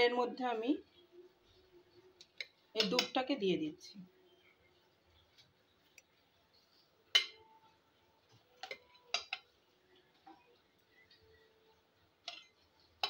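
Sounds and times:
metal spoon clinking on steel dishes: 0:02.4 - 0:03.2, 0:07.1 - 0:07.5, 0:08.5 - 0:09.5, 0:12.2 - 0:13.0.

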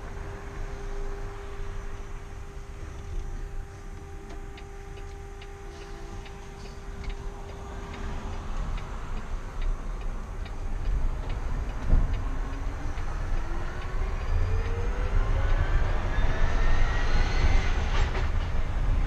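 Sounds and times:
turn signal clicking: 0:02.4 - 0:15.6.

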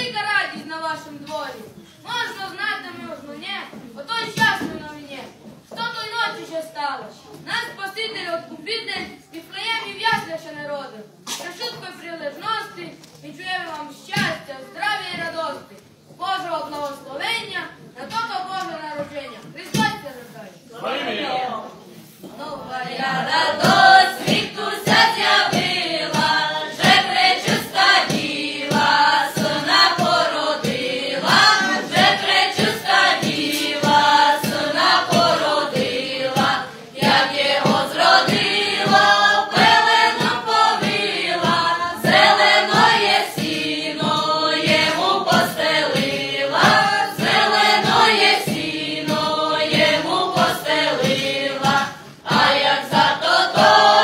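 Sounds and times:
group singing a carol: 0:22.2 - 0:54.0
regular beat: 0:23.0 - 0:54.0.

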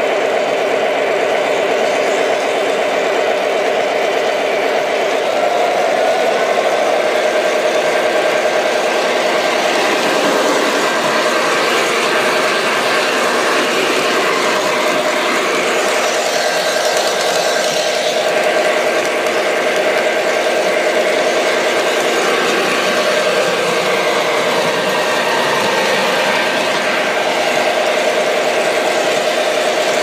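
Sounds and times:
model train running on track: 0:00.0 - 0:30.0.

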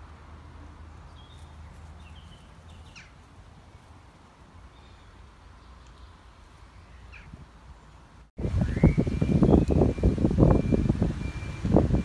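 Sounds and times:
bird chirps: 0:01.1 - 0:03.9.

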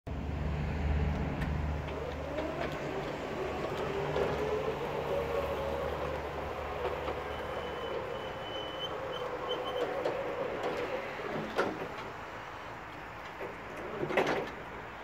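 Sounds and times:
high whistle: 0:07.3 - 0:09.8.

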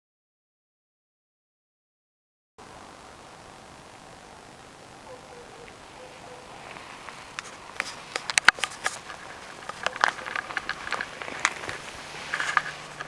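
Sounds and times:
clicks and crunches: 0:06.6 - 0:13.0.

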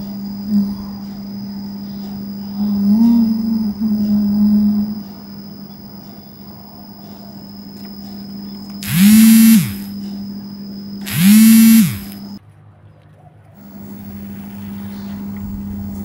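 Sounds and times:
motor revving: 0:08.8 - 0:09.9, 0:11.0 - 0:12.4
steady low hum: 0:08.8 - 0:09.9, 0:10.6 - 0:12.4.

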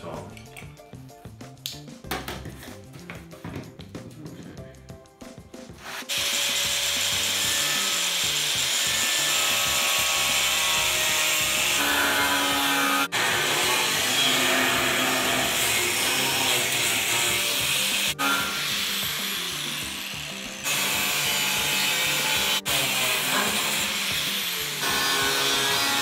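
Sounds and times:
angle grinder cutting iron: 0:05.8 - 0:26.0.

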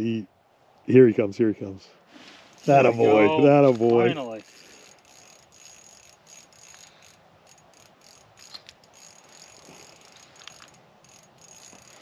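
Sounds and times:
fishing reel clicking: 0:02.5 - 0:12.0.

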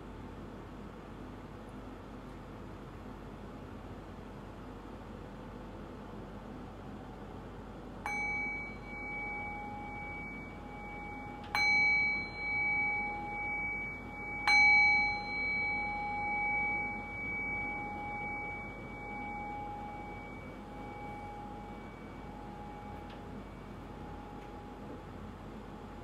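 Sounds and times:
meditation bell ringing: 0:08.0 - 0:25.0.

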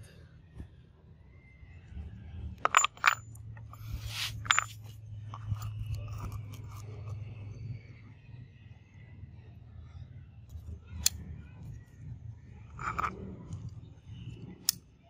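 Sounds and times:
metal pieces clinking on wood: 0:02.6 - 0:06.9, 0:12.7 - 0:13.2
brief scrape: 0:03.8 - 0:04.9.

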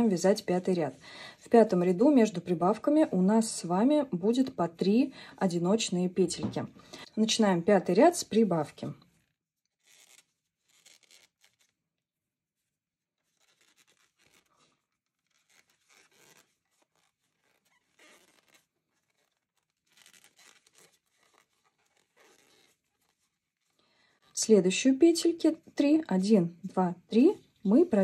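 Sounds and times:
faint yarn rustles: 0:12.6 - 0:26.0.

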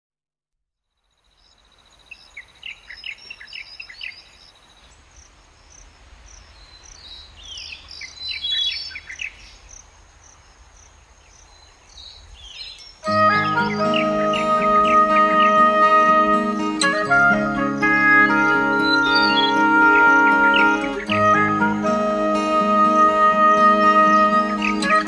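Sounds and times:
birds chirping and whistling: 0:06.6 - 0:09.6, 0:12.0 - 0:22.5, 0:24.1 - 0:25.0.

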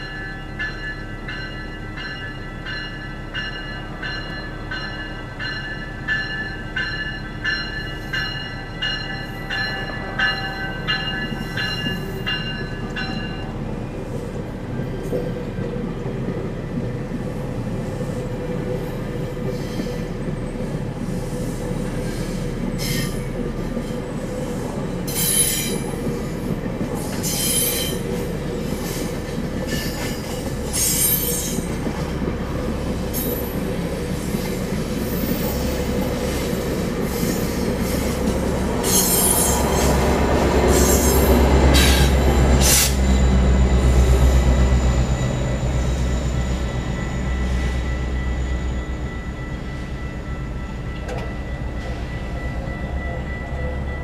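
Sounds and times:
diesel locomotive drone: 0:00.0 - 0:54.0
train wheels rumbling: 0:00.0 - 0:54.0.

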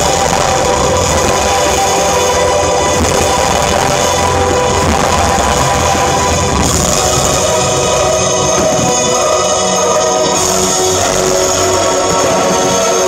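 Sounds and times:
loud rock music: 0:00.0 - 0:13.0.

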